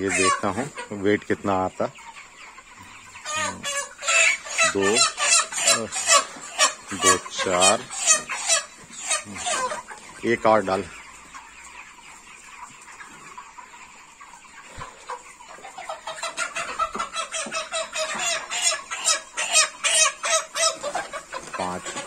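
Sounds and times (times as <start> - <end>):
chicken squawking loudly: 0.0 - 1.0, 3.0 - 11.4, 14.6 - 22.0
chickens clucking: 0.0 - 22.0.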